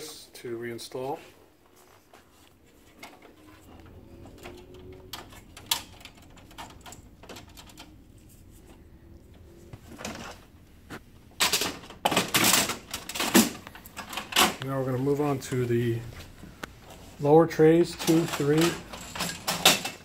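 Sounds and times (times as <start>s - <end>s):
plastic scraping and rattling: 11.4s - 14.7s.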